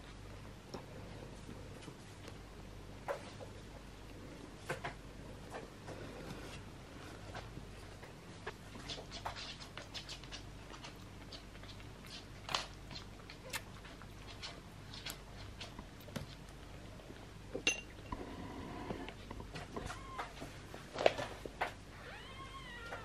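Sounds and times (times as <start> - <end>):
kitten suckling wet clicks: 9.8 - 16.6.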